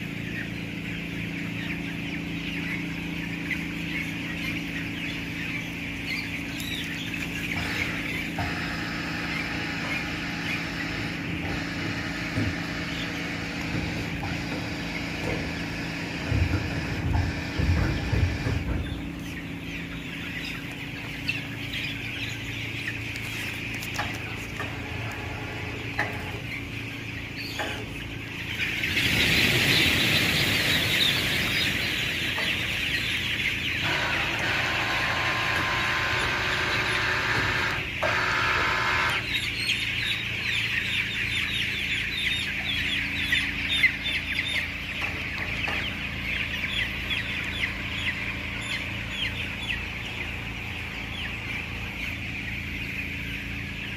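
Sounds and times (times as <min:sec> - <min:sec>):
chicks peeping and cheeping: 0:00.0 - 0:53.9
fans humming: 0:00.0 - 0:53.9.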